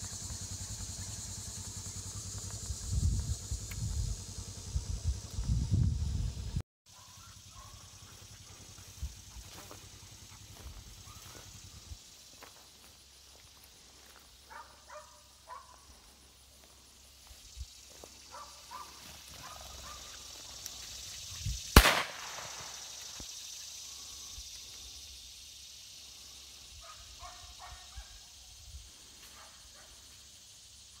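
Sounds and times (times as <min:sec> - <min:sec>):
gunshot: 0:21.8 - 0:22.9.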